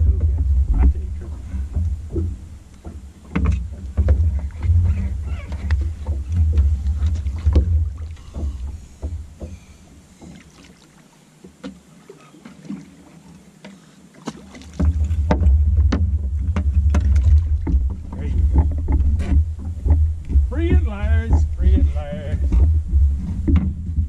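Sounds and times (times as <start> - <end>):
wind rumble on microphone: 0.0 - 9.8, 14.8 - 24.0
small water splashes: 0.0 - 22.7
knocks and clicks: 14.8 - 24.0.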